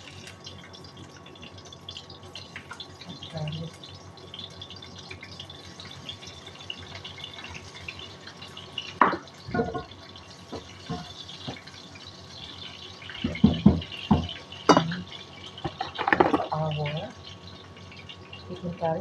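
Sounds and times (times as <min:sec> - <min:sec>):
wooden spatula knocking on wok: 0:09.0 - 0:09.9, 0:13.2 - 0:14.9
steel bowl clattering on counter: 0:15.6 - 0:16.6.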